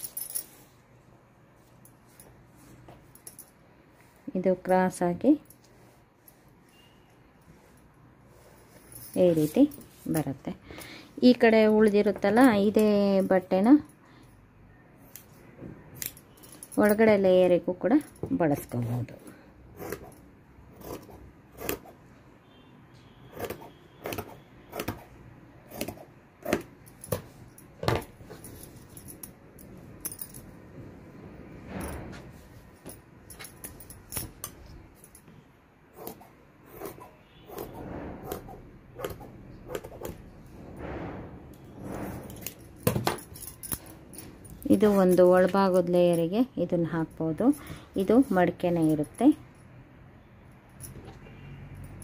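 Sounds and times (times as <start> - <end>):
fabric rustling: 0.0 - 13.5
scissors snipping cloth: 19.8 - 22.0, 36.0 - 40.2.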